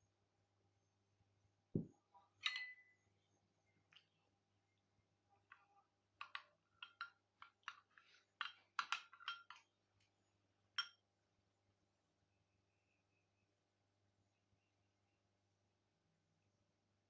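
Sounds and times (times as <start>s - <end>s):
spoon clinking against glass bowl: 2.4s - 3.0s, 6.2s - 9.7s, 10.8s - 11.0s.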